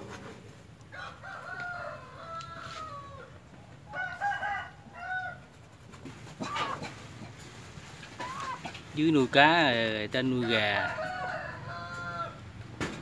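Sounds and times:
rooster crowing: 0.9 - 5.4, 10.2 - 12.5.

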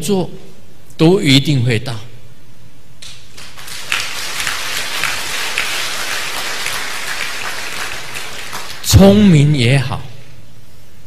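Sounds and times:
crowd applause: 3.3 - 9.2.

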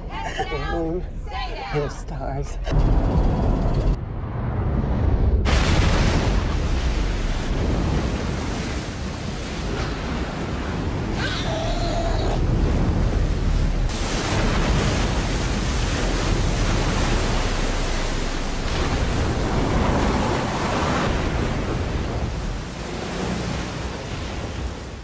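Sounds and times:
rush of spray and water: 5.5 - 25.0.

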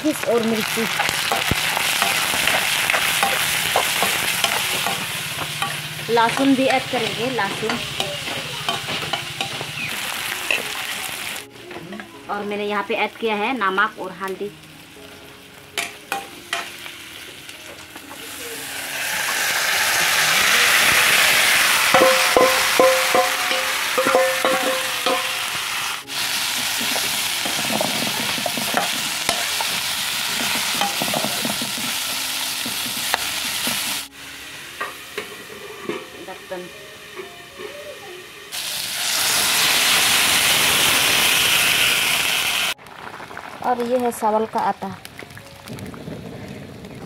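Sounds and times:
frying sizzle in a wok: 0.0 - 46.5
metal ladle scraping and clinking: 21.9 - 25.5.

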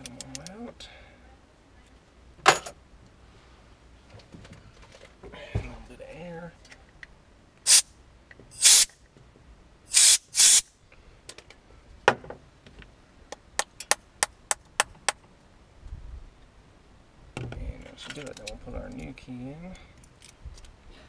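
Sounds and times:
compressed air hissing: 7.7 - 7.9, 8.6 - 8.9, 9.9 - 10.7.

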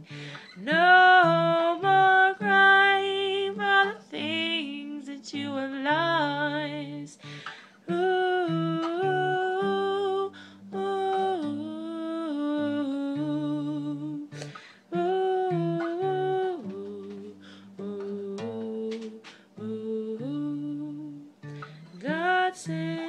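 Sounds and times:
acoustic guitar: 0.0 - 23.0
woman humming: 15.0 - 23.0.

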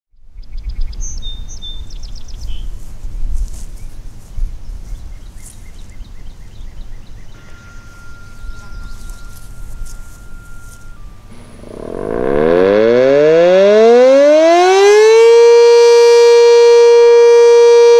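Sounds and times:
wind rumbling on microphone: 0.2 - 7.4, 8.0 - 13.2
small birds chirping: 0.4 - 12.4
faint steady high tone: 7.3 - 13.4.

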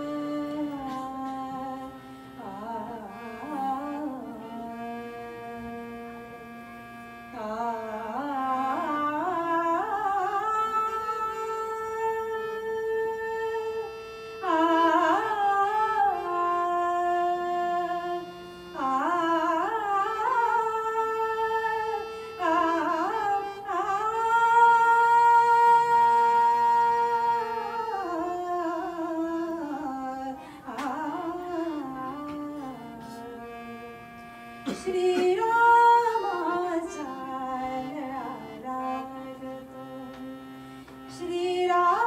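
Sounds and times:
harmonium: 0.0 - 42.0
woman singing devotional song: 0.0 - 42.0.

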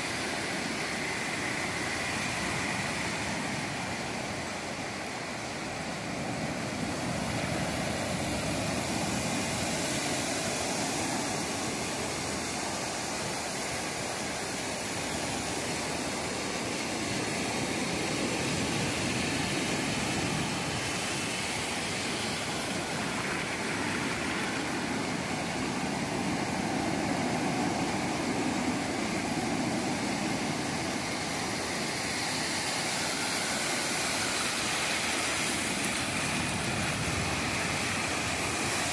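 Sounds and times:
waves breaking on sand: 0.0 - 38.9.

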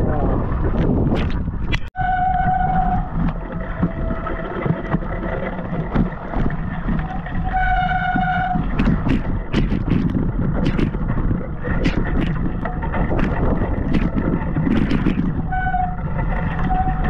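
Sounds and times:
bike tyres rumbling: 0.0 - 17.0
wind buffeting microphone: 0.0 - 17.0
high squeal: 2.0 - 4.7, 6.9 - 9.0, 15.5 - 17.0.

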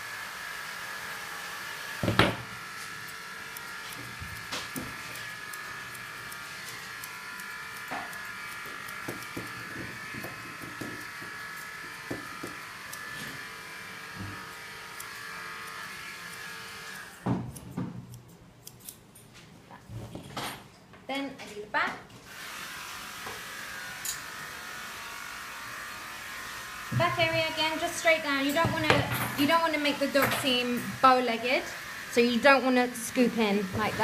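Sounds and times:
small motor hum: 0.0 - 17.3
scissors snipping: 3.0 - 19.3.

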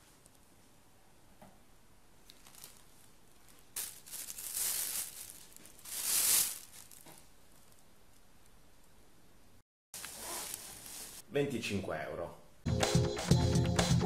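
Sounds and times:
plastic bags crinkling: 2.2 - 8.3, 10.0 - 11.2.

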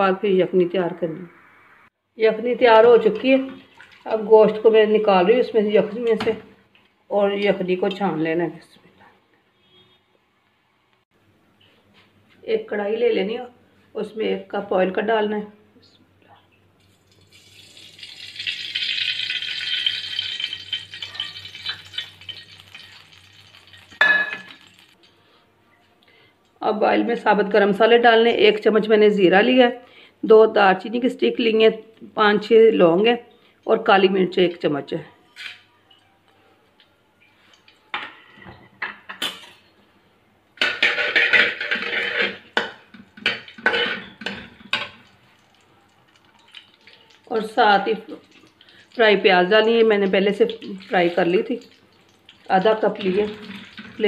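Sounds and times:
spatula scraping a metal pan: 40.6 - 42.6.

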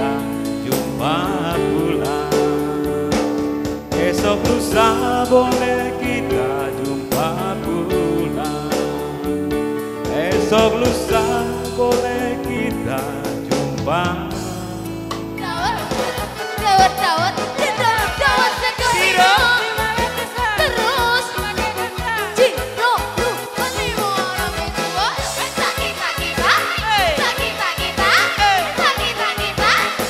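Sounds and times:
electronic keyboard chords: 0.0 - 30.0
woman singing: 15.4 - 30.0.

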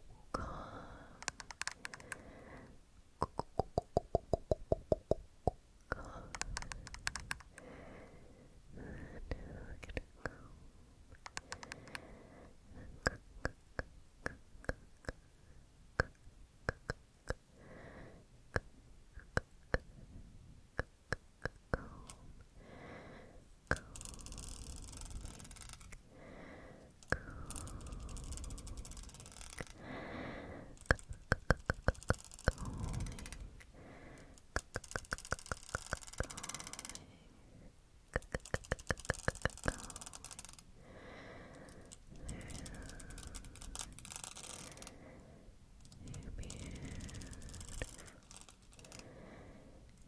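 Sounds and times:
comb teeth clicking: 1.2 - 2.2, 5.9 - 7.7, 11.1 - 12.1, 23.7 - 26.0, 27.0 - 29.8, 30.8 - 37.1, 38.1 - 40.6, 41.5 - 45.0, 45.8 - 49.2.

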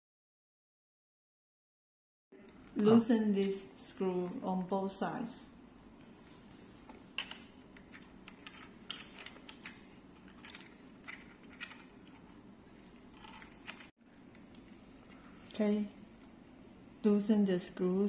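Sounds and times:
low room noise: 2.3 - 18.0
plastic and metal parts clicking: 7.2 - 12.4, 13.1 - 14.6.

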